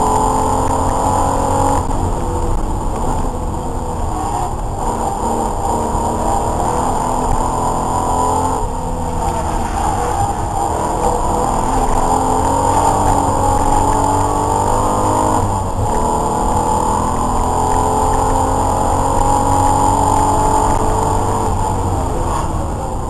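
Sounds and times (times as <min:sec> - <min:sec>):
race car engine revving: 0:00.0 - 0:23.0.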